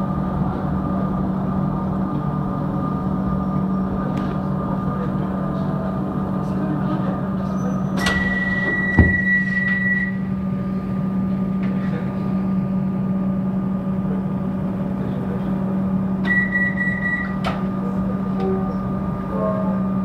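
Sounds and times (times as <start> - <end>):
high-pitched train whine: 0.0 - 20.0
train carriage hum: 0.0 - 20.0
short knock: 8.9 - 9.3.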